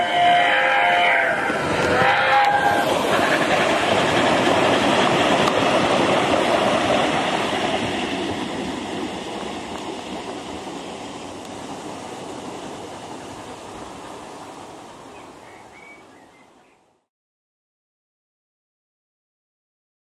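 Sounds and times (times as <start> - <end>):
train whistle: 0.0 - 3.4.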